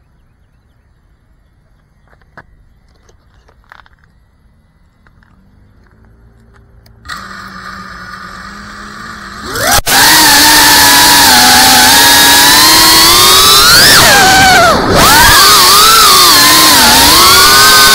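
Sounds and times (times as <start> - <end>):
drone motors whining: 5.0 - 17.9.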